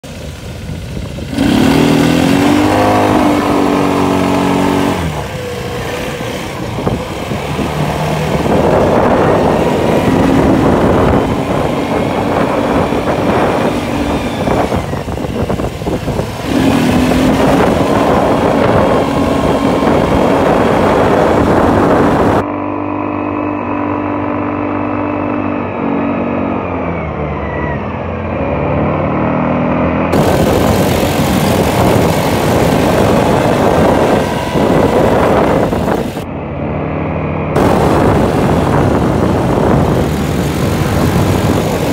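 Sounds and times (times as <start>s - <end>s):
wind noise: 0.0s - 22.5s, 30.0s - 36.4s, 37.4s - 41.9s
quad bike engines revving: 0.0s - 41.9s.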